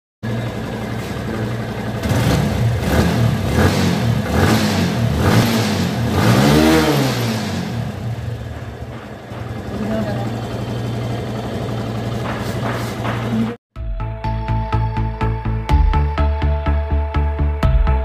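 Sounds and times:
motorcycle engine idling and revving: 0.2s - 13.6s.

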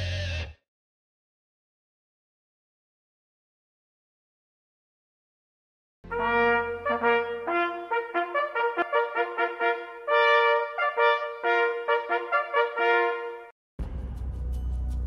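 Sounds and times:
hunting horns blowing: 6.1s - 13.5s.

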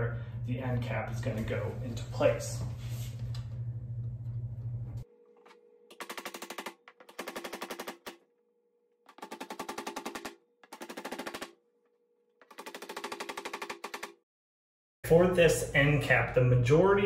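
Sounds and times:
hammer striking nails: 9.1s - 11.6s.

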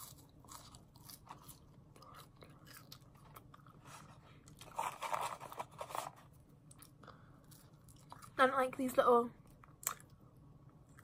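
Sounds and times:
chewing crunchy fries: 0.0s - 5.5s, 6.6s - 8.4s.

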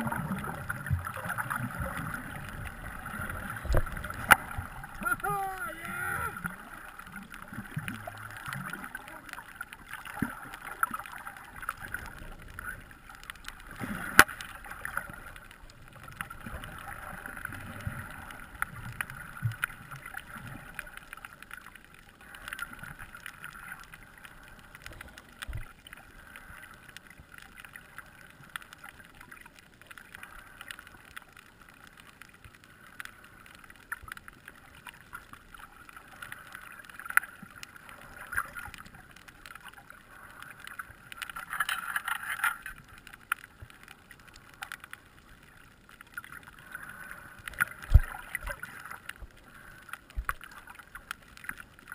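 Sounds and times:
faint clicks and crackles: 0.0s - 51.9s
muffled underwater hiss: 0.0s - 51.9s.

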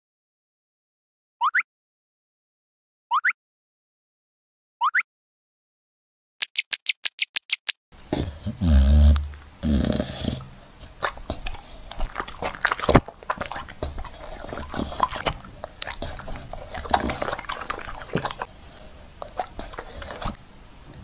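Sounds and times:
dog chewing wet fruit: 9.1s - 20.4s.

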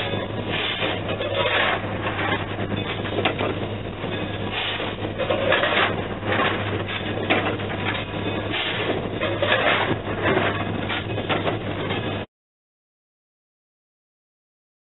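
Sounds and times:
coal shovelling into firebox: 0.5s - 2.4s, 4.5s - 6.6s, 8.5s - 10.6s.

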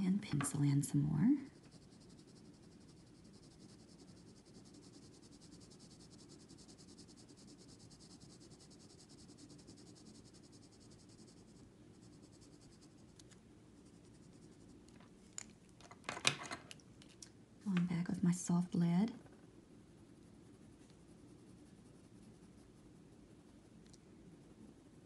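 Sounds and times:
pencil scratching on paper: 0.7s - 14.9s, 20.1s - 23.8s.

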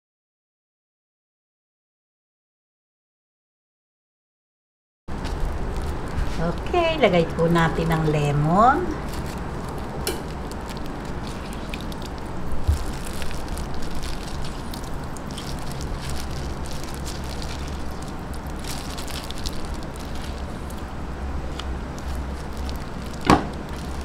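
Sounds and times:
low background hum with hiss: 5.1s - 24.0s.

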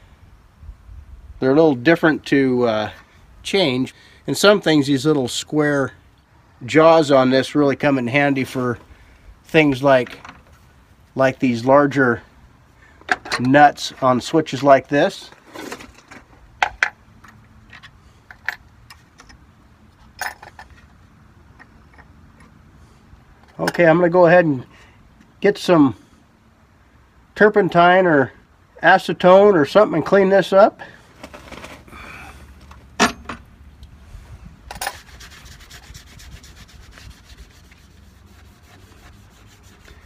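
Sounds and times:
rag wiping sheet metal: 34.8s - 40.0s.

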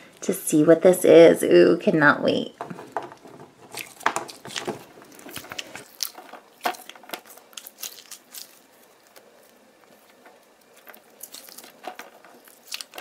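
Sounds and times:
squishy toy clicks and crackles: 3.8s - 13.0s.

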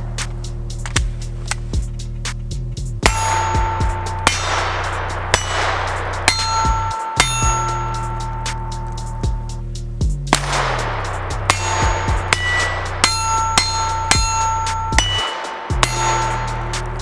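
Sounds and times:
background music: 0.0s - 17.0s
steel target clanging: 3.0s - 9.6s, 10.3s - 17.0s.

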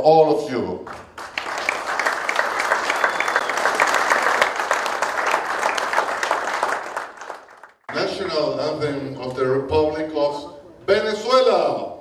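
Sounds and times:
audience applauding: 0.9s - 7.9s.

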